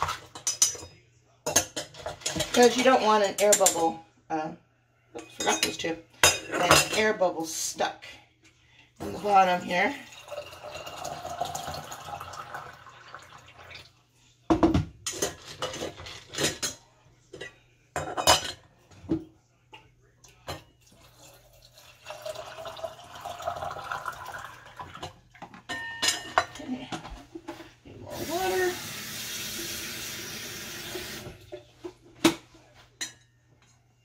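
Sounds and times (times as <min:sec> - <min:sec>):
water pouring into a jar: 0:10.0 - 0:14.0, 0:20.8 - 0:25.0
metal clinking against glass: 0:25.7 - 0:26.6.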